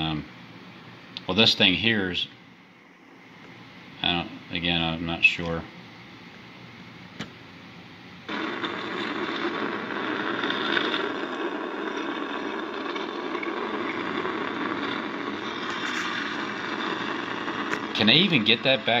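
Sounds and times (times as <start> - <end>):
steady noise: 8.2 - 19.0.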